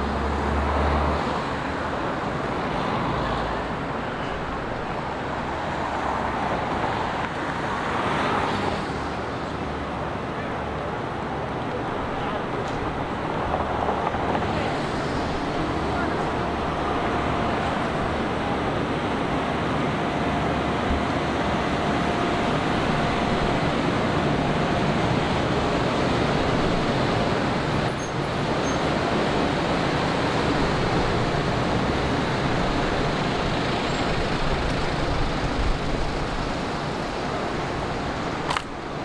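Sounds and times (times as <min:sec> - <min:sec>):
city street traffic hum: 0:00.0 - 0:39.0
sharp click: 0:38.5 - 0:38.7.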